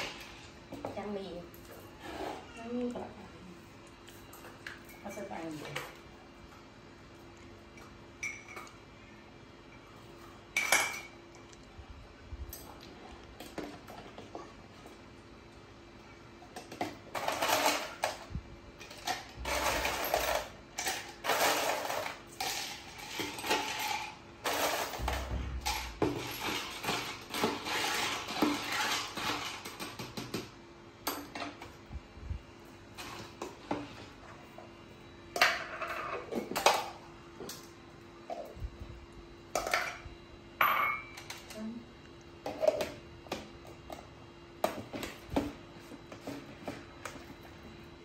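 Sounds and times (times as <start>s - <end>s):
ice clinking and rattling: 17.1s - 18.2s, 18.8s - 30.0s.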